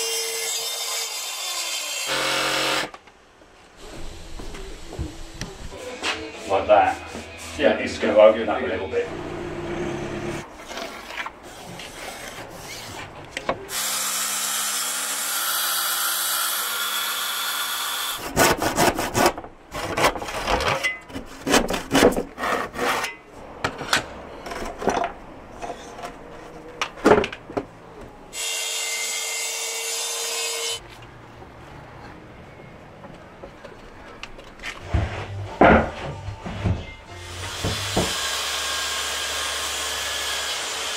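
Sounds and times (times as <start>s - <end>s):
hand saw cutting worktop: 0.0s - 3.0s, 13.7s - 23.2s, 37.1s - 40.9s
power tool noise: 0.0s - 3.0s, 13.7s - 18.2s, 37.1s - 40.9s.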